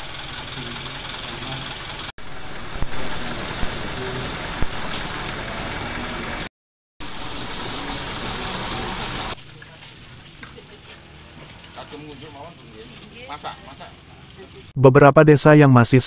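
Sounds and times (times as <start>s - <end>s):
truck engine running: 0.0s - 14.7s
water gushing from hose into tank: 2.2s - 14.7s.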